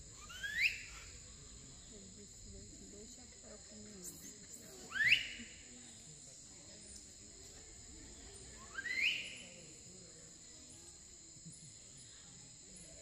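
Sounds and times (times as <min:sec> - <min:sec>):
insects droning: 0:00.0 - 0:13.0
loud rising whistled calls: 0:00.2 - 0:01.0.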